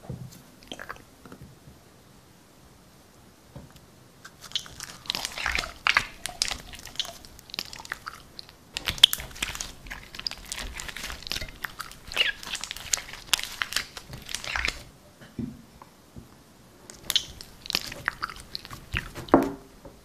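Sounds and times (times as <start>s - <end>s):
slime crackling and squelching: 4.3s - 14.9s, 16.9s - 19.4s.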